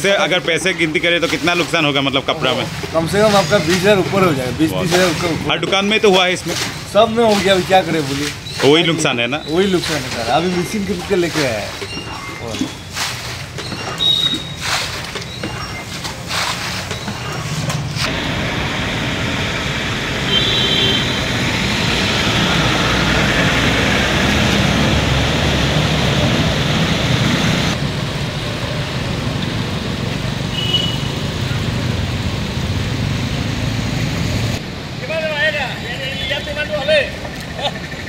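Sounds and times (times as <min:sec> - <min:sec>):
vehicles driving through floodwater: 0:00.0 - 0:38.0
water sloshing: 0:00.2 - 0:18.1.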